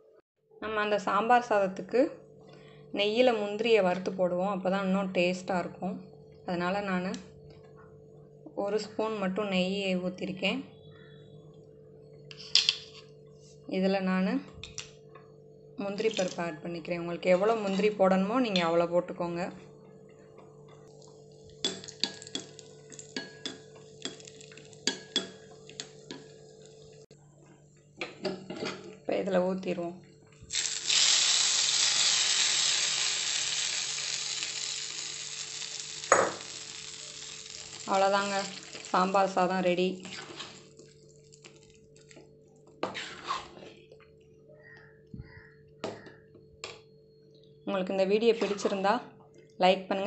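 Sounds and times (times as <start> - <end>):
metal spoon scraping iron pan: 40.0 - 40.6, 42.8 - 43.7
spoon stirring thick wet rice: 40.0 - 42.1.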